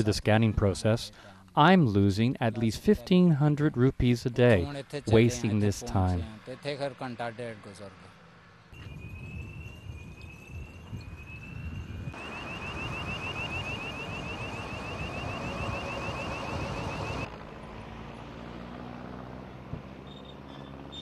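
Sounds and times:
vehicle engine hum: 0:04.3 - 0:21.0
electronic siren: 0:08.8 - 0:17.3.

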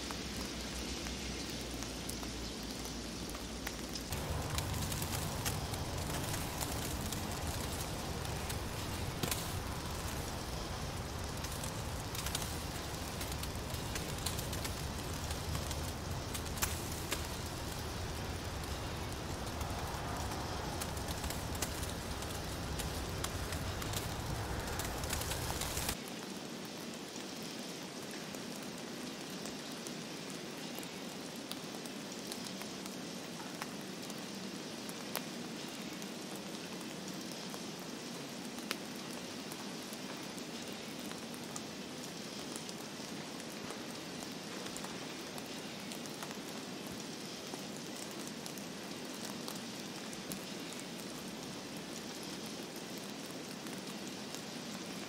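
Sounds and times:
snowflakes ticking: 0:00.0 - 0:26.2, 0:26.8 - 0:55.0
hiss of heavy snowfall: 0:00.0 - 0:55.0
low rumble: 0:04.1 - 0:26.0.

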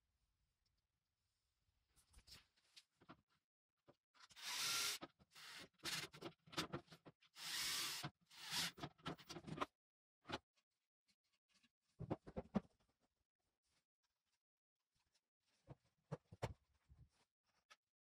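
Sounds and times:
cordless drill driving screws: 0:04.3 - 0:06.1, 0:07.4 - 0:08.8.

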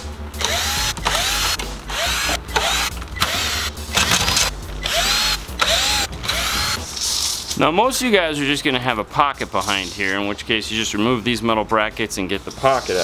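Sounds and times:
cordless drill whining: 0:00.4 - 0:06.8.

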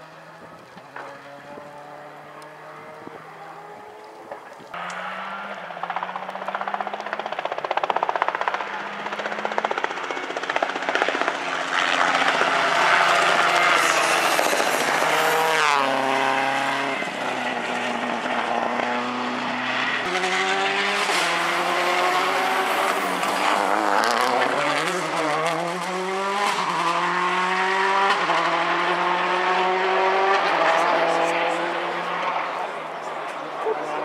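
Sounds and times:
rally car engines revving: 0:00.0 - 0:34.0.

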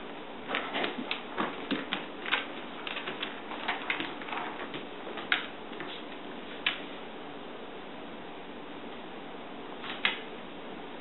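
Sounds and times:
dog claws clicking on tile: 0:00.5 - 0:06.0.

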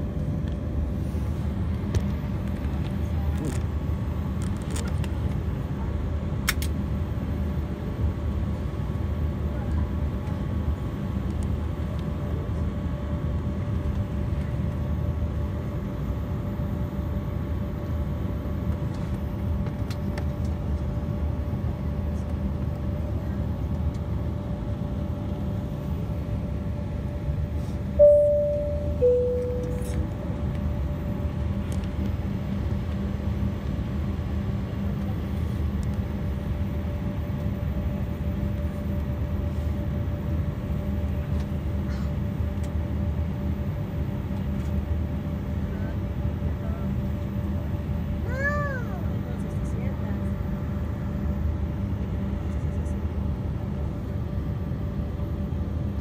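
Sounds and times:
jet engines humming: 0:14.6 - 0:45.3
two-tone cabin chime: 0:28.0 - 0:30.2.

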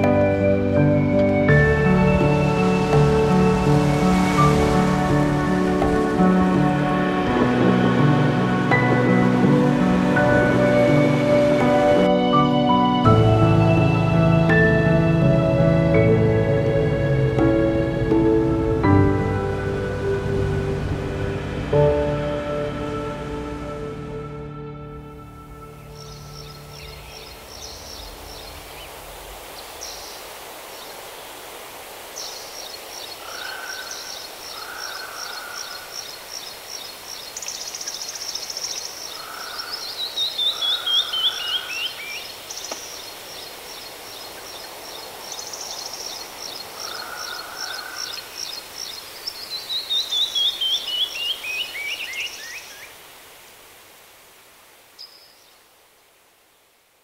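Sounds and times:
birds singing: 0:25.8 - 0:31.1, 0:32.2 - 0:53.0.

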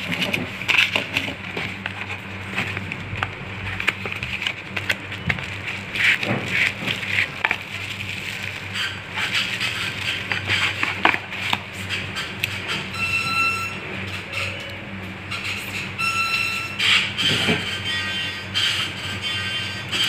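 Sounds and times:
bubble wrap and plastic crinkling: 0:00.0 - 0:11.8.

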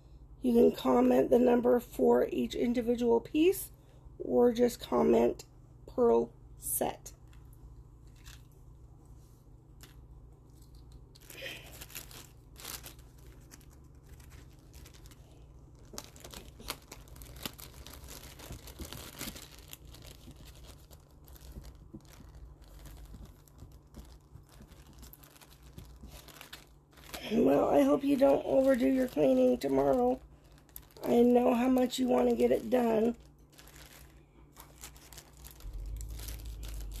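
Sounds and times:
plastic bag crinkling: 0:07.2 - 0:08.8, 0:09.7 - 0:37.0.

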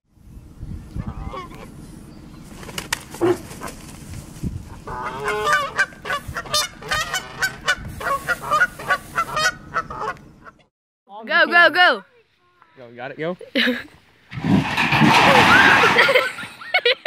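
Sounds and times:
geese honking: 0:01.0 - 0:01.8, 0:04.7 - 0:10.7.

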